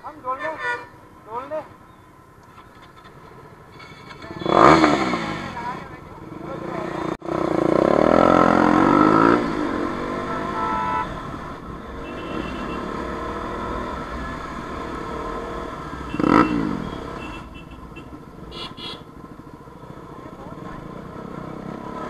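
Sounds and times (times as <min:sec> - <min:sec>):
motorcycle engines revving: 0:00.2 - 0:22.0
short horn toots: 0:10.2 - 0:11.1, 0:12.0 - 0:12.9, 0:16.1 - 0:19.0.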